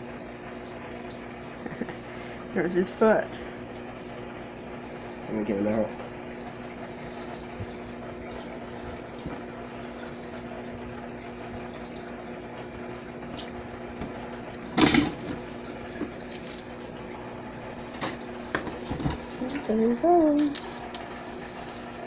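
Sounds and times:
running water: 0.0 - 22.0
water pump humming: 0.0 - 22.0.

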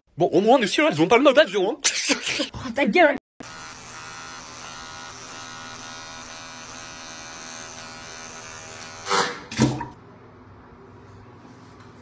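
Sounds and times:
electric shaver buzzing: 3.4 - 9.4.

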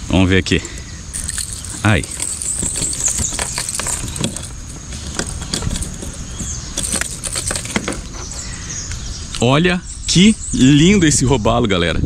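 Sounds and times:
metallic clicks of pliers and hooks: 0.6 - 8.4.

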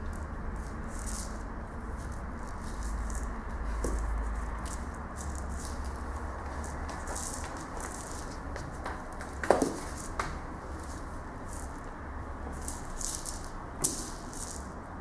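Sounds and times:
rattle ball toy rattling: 0.0 - 14.8
ball tapping on wooden floor: 6.5 - 10.4.

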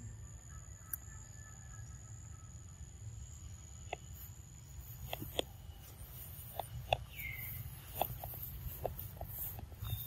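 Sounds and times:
bird chirp: 0.0 - 10.0
sharp ticks: 4.9 - 10.0.

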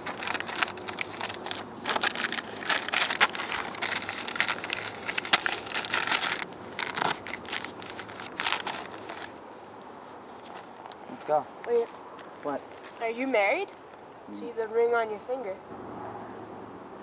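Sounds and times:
paper crinkling and rustling: 0.0 - 11.0.

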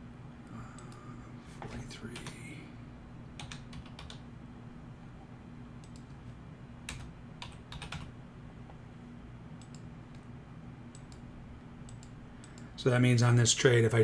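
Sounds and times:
steady low hum: 0.0 - 14.0
keyboard typing: 3.4 - 4.2, 5.8 - 6.2, 6.9 - 8.1.

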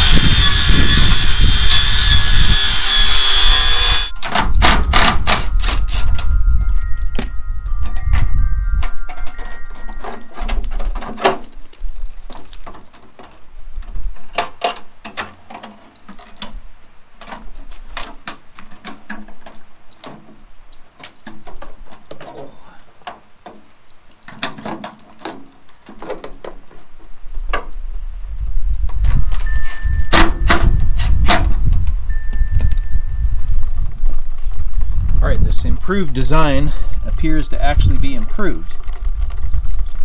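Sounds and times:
rainwater trickling and dripping: 5.4 - 30.1, 30.7 - 40.0
plastic downspout parts clicking: 7.2 - 26.8.

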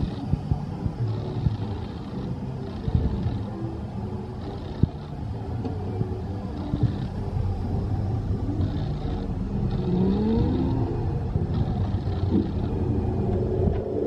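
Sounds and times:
boat low rumble: 0.0 - 14.0.

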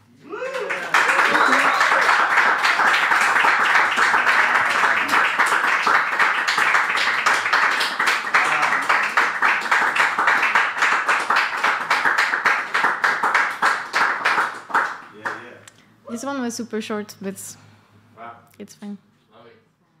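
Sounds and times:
people clapping: 0.3 - 15.8.

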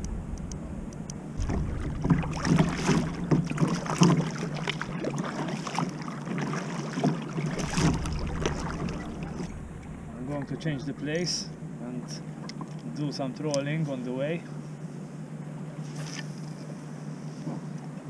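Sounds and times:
water splashing against kayak hull: 1.3 - 11.7.

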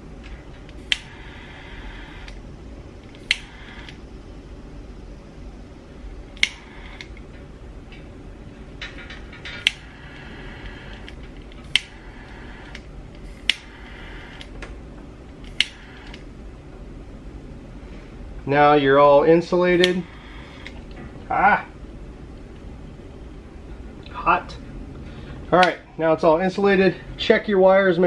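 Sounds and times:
gas and flame hissing: 0.6 - 4.1, 6.2 - 7.3, 9.4 - 14.7, 15.4 - 16.4, 19.6 - 21.0
torch lighter clicking: 0.7 - 2.4, 3.1 - 4.0, 6.4 - 7.2, 9.6 - 14.5, 15.4 - 16.3, 19.8 - 20.8.

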